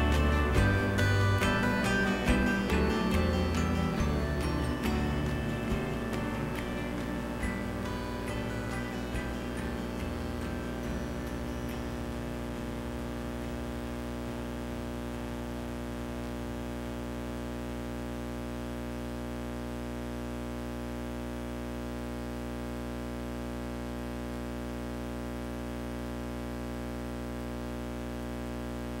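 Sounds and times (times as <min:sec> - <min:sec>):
constant hiss: 0:00.0 - 0:15.1
electrical hum: 0:00.0 - 0:29.0.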